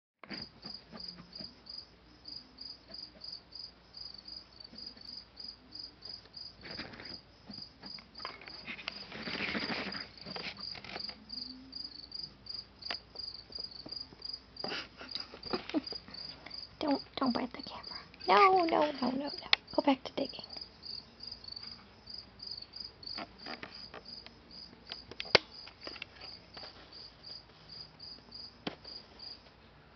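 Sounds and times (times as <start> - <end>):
cricket chirping: 0.3 - 29.5
rabbit scratching at fabric: 6.6 - 11.2.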